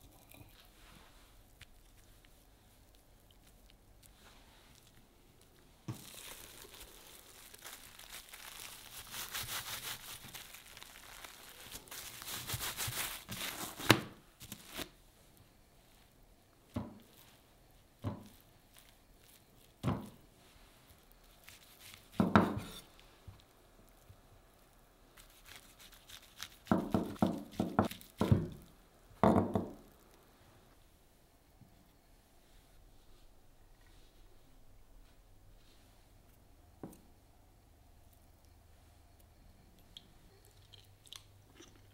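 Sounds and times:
plastic wrap crinkling: 1.5 - 15.0, 18.1 - 28.8.

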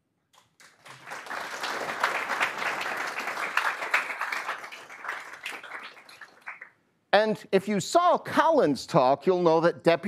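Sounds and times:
audience applauding: 0.6 - 6.8.

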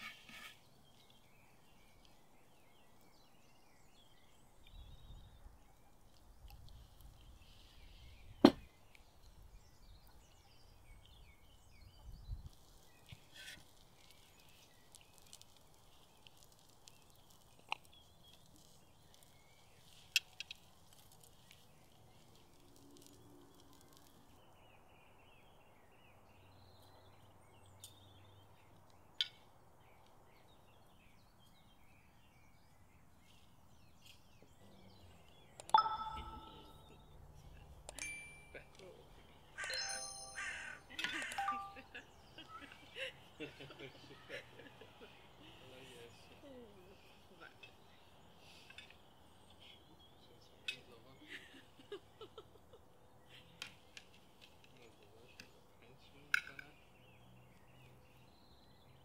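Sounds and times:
faint bird chirps: 33.2 - 43.0.

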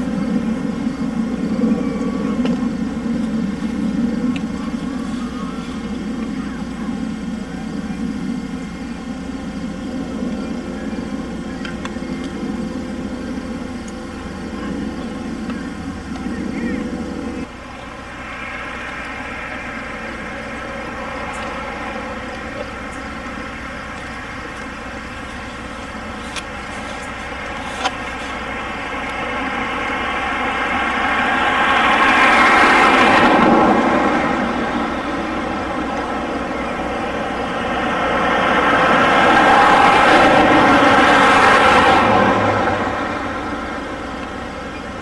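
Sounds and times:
steady background hum: 0.0 - 45.0
vehicles passing by: 0.0 - 45.0
faint clicks: 1.6 - 7.1, 10.2 - 12.8.

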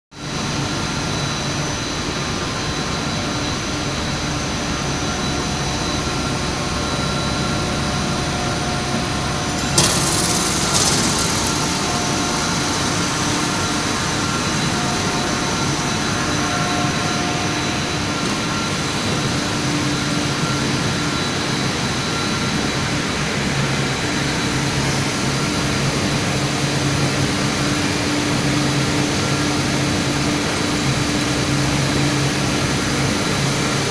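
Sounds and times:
machinery drone: 0.2 - 33.8
blower fans humming: 0.4 - 22.2.

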